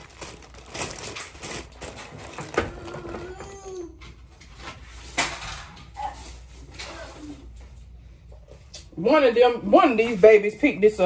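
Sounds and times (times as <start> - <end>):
plastic packaging crinkling: 0.0 - 3.8.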